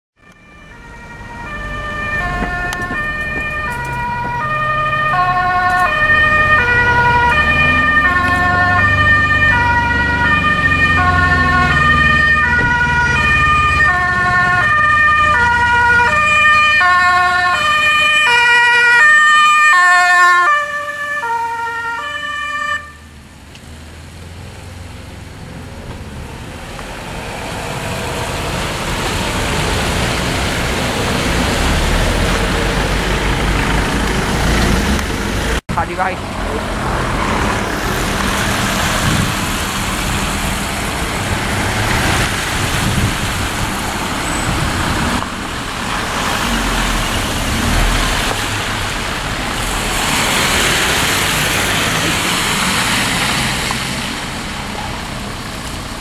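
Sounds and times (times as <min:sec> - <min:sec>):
two-tone ambulance siren: 0:00.2 - 0:23.2
road noise: 0:00.2 - 0:56.0.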